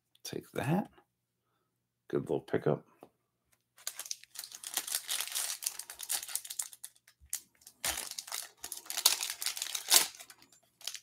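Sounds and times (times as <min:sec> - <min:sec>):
foil wrapper crinkling and tearing: 0:03.8 - 0:11.0.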